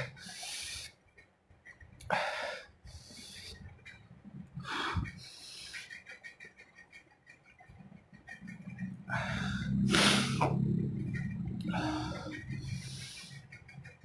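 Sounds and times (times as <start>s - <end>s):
man breathing hard: 2.1s - 3.6s, 4.6s - 6.0s, 9.1s - 10.4s.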